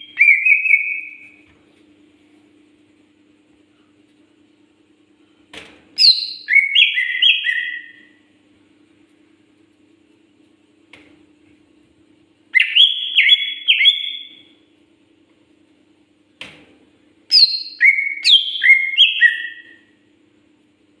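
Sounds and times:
bird whistling song: 0.0s - 1.4s, 6.0s - 8.2s, 12.5s - 14.5s, 17.3s - 20.0s
faint steady hum: 0.0s - 21.0s.

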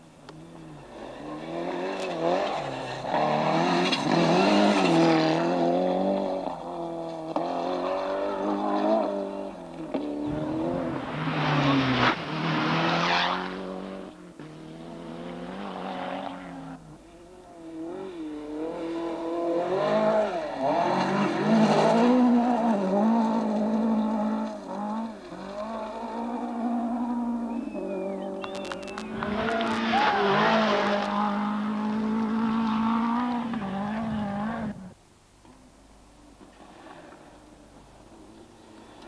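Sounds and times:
rally car engines revving: 0.0s - 39.0s
gravel hiss: 34.9s - 39.0s.

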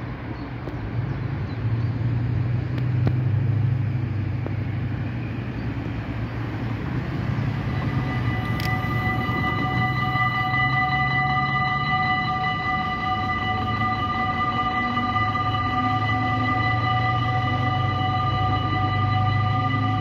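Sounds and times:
road traffic rumble: 0.0s - 20.0s
crossing warning bells ringing: 2.1s - 20.0s.

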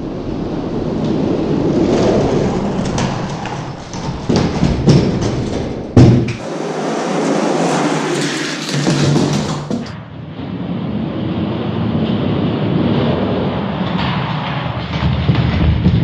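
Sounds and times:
sharp knocks: 2.8s - 10.0s
toy trucks rolling down plastic track: 6.5s - 9.9s.

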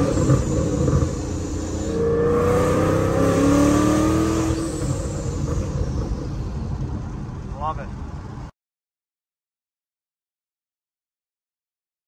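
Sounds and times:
car engine accelerating hard: 0.0s - 8.5s.

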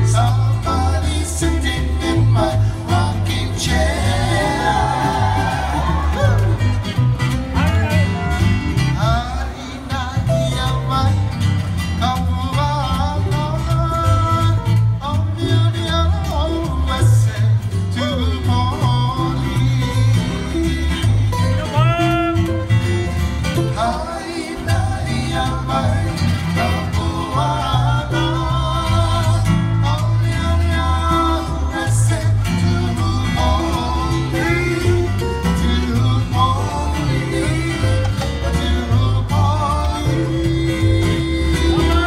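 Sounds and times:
person singing with vibrato: 0.0s - 6.6s, 23.6s - 42.0s
acoustic guitars strummed and plucked: 0.0s - 42.0s
bass line: 0.0s - 42.0s.

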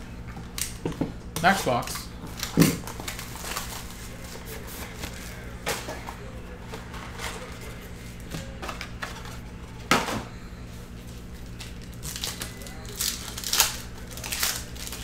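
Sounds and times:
low steady hum: 0.0s - 15.0s
plastic wrap and cardboard rustling: 2.3s - 9.8s, 11.0s - 15.0s.

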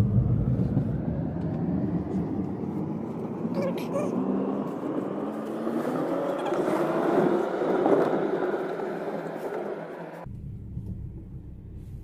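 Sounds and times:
street traffic passing: 0.0s - 12.0s
car cabin hum: 10.2s - 12.0s.

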